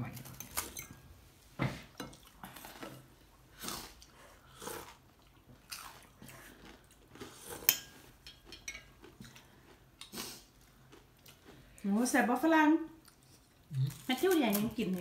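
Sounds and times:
man chewing and sipping soup: 0.4 - 11.8.

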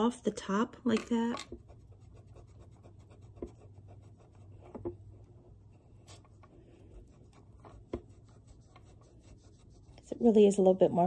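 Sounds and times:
eraser scrubbing on paper: 1.5 - 4.7, 5.5 - 10.8.

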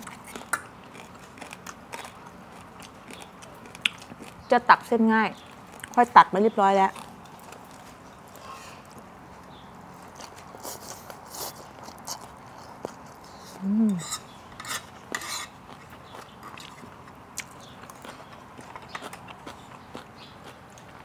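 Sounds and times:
person humming: 13.6 - 14.1.

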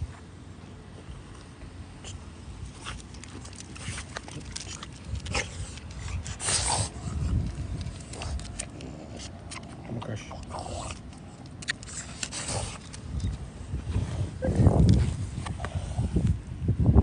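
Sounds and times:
dog breathing noisily: 2.0 - 14.4, 15.1 - 16.3.

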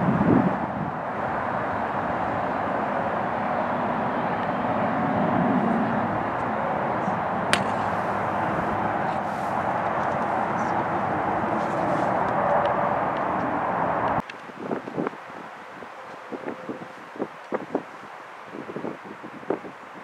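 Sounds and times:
steady rumbling background noise: 0.0 - 20.0
golf club striking ball: 7.5 - 9.3.

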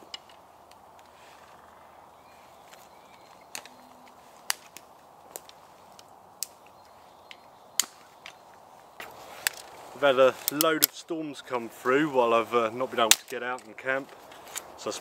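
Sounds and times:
faint woodland background: 0.0 - 15.0
dry sticks snapping: 2.6 - 9.8, 10.4 - 11.0, 13.0 - 14.7.

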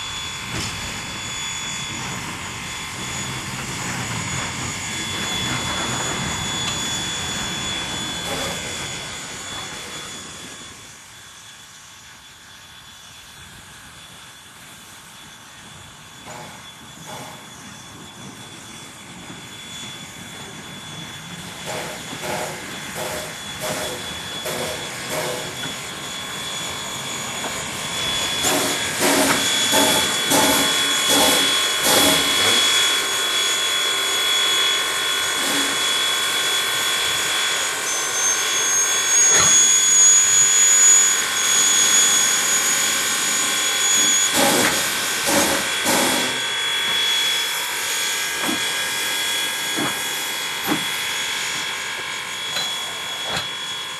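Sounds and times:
steam hissing: 0.0 - 53.9
steam locomotive chuffing: 0.0 - 53.9
thin high steady tone: 15.0 - 53.9.

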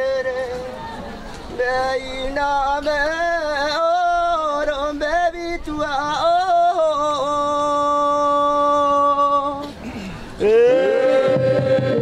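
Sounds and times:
person singing a chant: 10.4 - 12.0.

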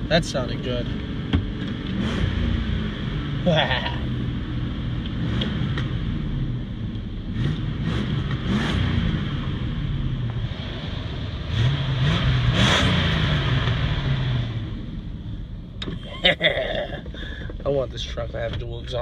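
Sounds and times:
pickup engine revving: 1.0 - 15.3.

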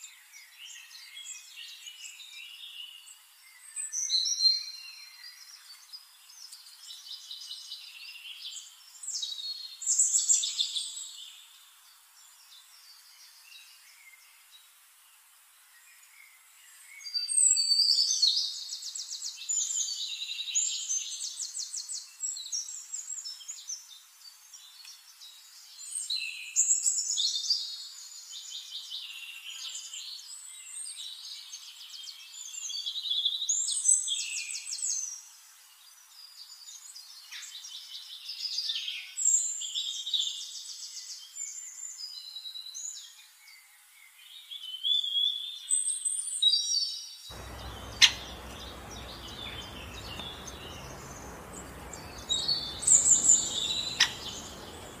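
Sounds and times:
songbirds singing: 46.6 - 55.0
low background hiss: 47.3 - 55.0.

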